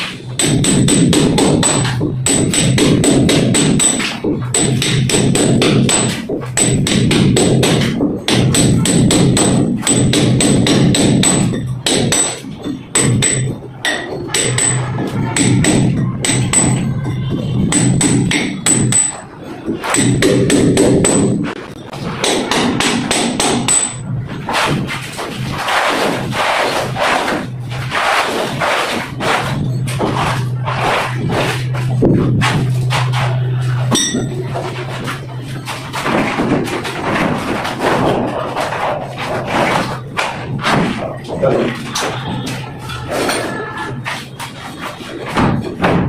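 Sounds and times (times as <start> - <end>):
plastic panel knocking and scraping: 0.0 - 33.5, 34.2 - 46.0
hammer blows ringing: 0.0 - 46.0.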